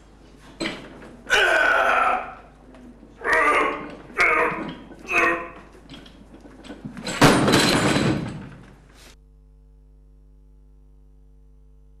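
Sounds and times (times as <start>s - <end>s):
barbell plates crashing on floor: 6.8s - 8.7s
faint steady hum: 8.3s - 12.0s.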